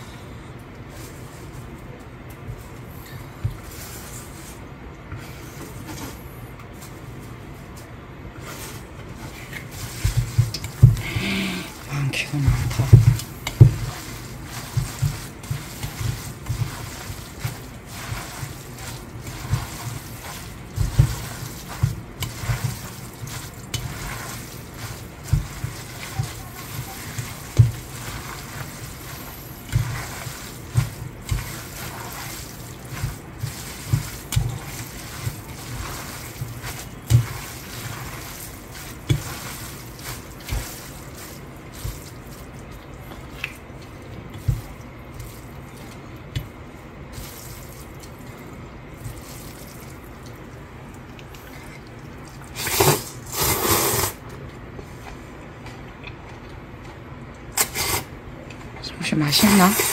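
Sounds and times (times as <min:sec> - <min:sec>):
wet squelching of noodles: 0:08.4 - 0:58.1
loud slurps: 0:52.5 - 0:54.2.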